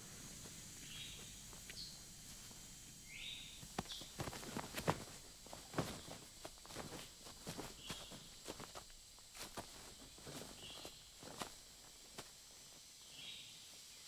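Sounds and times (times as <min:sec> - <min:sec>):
footsteps through undergrowth: 0:03.6 - 0:12.7.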